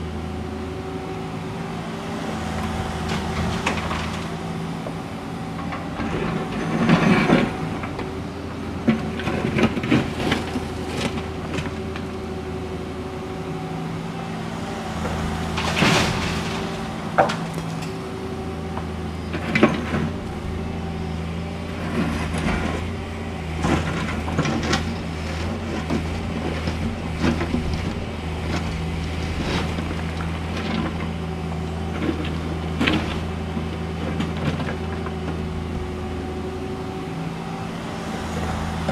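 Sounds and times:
excavator diesel engine running: 0:00.0 - 0:38.9
asphalt slabs scraping and clattering: 0:02.0 - 0:38.9
asphalt chunks crashing: 0:15.4 - 0:18.0.

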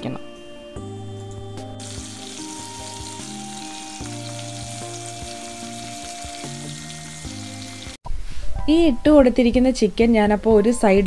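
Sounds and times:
chicken sizzling in a grill pan: 0:01.8 - 0:08.0.

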